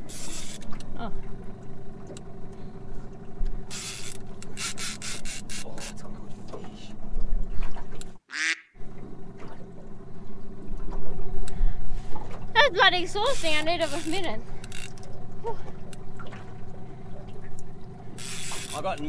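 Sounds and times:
outboard motor idling: 0.0s - 8.2s, 8.8s - 19.0s
short scratchy rasps: 13.2s - 15.0s.

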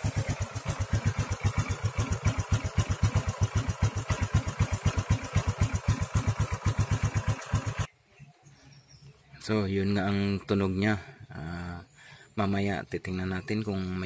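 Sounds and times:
motorcycle engine idling: 0.0s - 7.9s.

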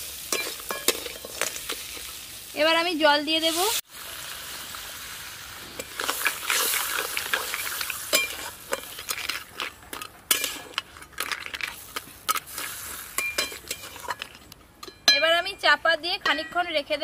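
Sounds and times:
masala sizzling: 0.0s - 17.0s
metal spatula scraping a wok: 5.7s - 14.5s.

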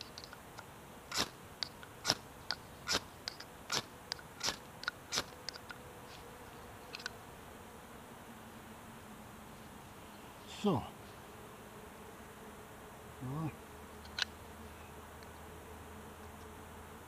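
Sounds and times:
pencil sharpener shaving wood: 1.1s - 5.7s
faint clicks: 6.9s - 7.2s.

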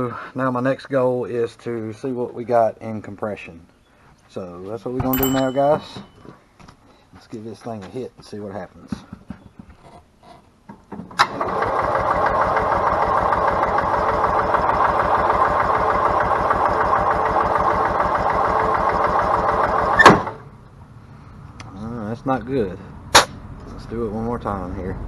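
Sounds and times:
man talking: 4.3s - 6.0s, 7.2s - 9.0s, 23.8s - 25.0s.

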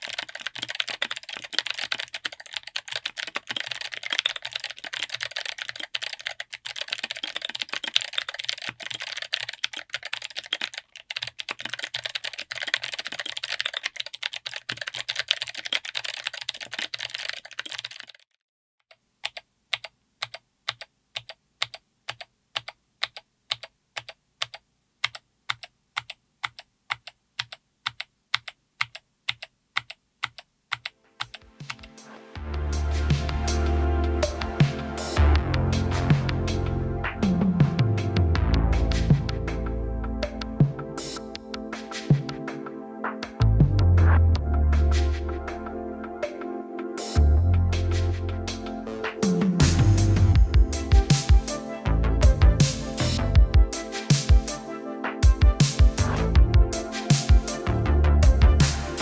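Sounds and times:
clicky mechanical keyboard typing: 0.0s - 18.3s, 18.9s - 31.9s.

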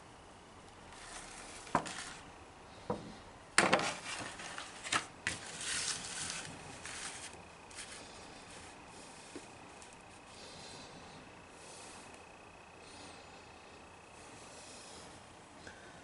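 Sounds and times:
paper rustle: 0.9s - 2.2s, 3.6s - 10.1s
laminated paper crinkling: 0.9s - 2.3s, 3.6s - 10.6s.

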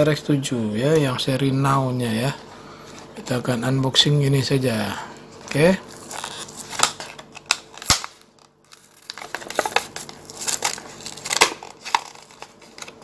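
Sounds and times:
plastic blister pack crinkling: 5.4s - 13.0s.

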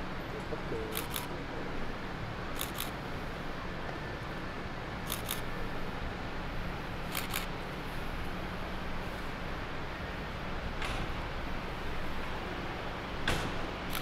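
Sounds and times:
low background noise: 0.0s - 14.0s
camera shutter clicking: 0.9s - 1.3s, 2.6s - 3.0s, 5.1s - 5.5s, 7.1s - 7.5s.

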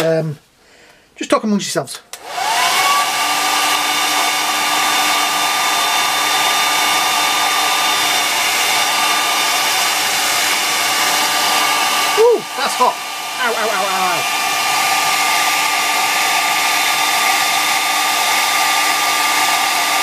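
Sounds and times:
hair dryer running: 2.1s - 20.0s.

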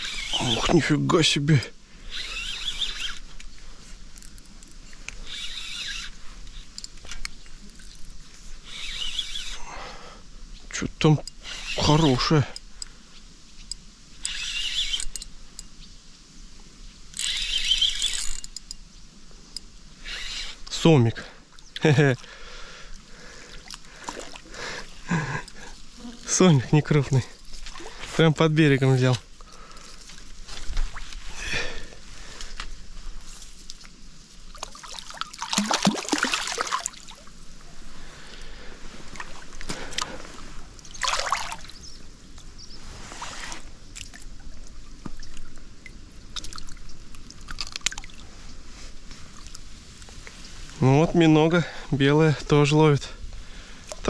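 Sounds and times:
fishing reel whirring: 0.0s - 0.7s, 2.0s - 3.5s, 4.2s - 9.6s, 11.2s - 12.7s, 14.2s - 15.7s, 17.1s - 18.8s, 20.0s - 20.8s
water splashing: 23.6s - 26.5s, 34.5s - 37.4s, 40.9s - 41.8s.

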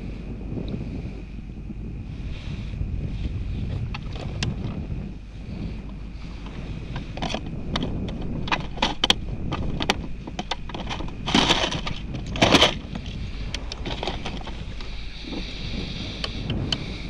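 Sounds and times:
wind on microphone: 0.0s - 17.0s
knocks and clicks of gear: 3.9s - 4.6s, 5.9s - 15.5s, 16.2s - 16.9s
scraping bursts: 6.2s - 16.6s.

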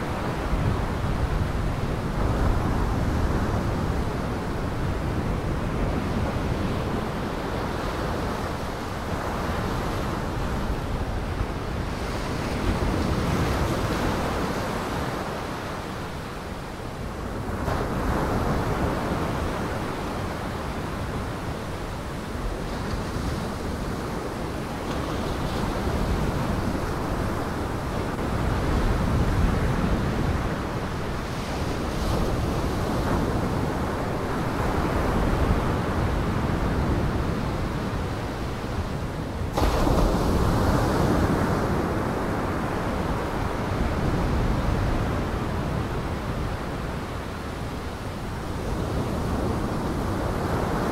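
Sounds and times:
wind: 0.0s - 50.9s.

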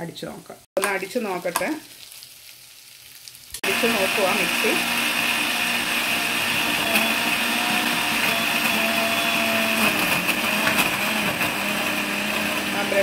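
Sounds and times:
blender running: 3.6s - 13.0s.

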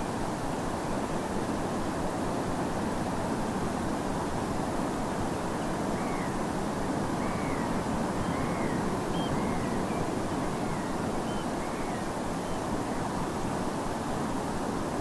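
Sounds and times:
distant sea surf: 2.5s - 14.3s
oystercatchers piping calls: 7.2s - 11.9s.

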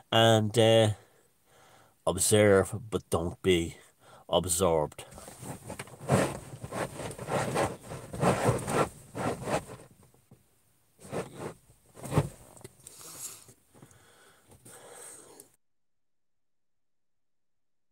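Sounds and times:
handling noise on phone microphone: 5.1s - 10.4s, 11.0s - 12.8s.

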